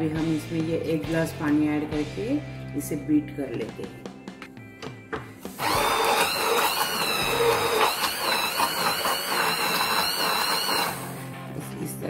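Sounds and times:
hand blender whirring: 5.5s - 11.4s.

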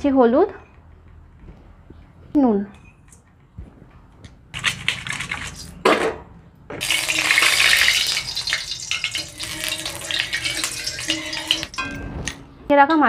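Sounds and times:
oil sizzling in a wok: 6.8s - 12.0s
spatula moving in wok: 6.8s - 12.4s
steel colander clattering: 6.8s - 12.5s.

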